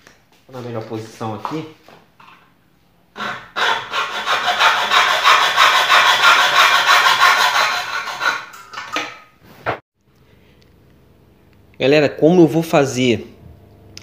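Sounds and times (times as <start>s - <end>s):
hacksaw cutting metal: 3.2s - 9.1s.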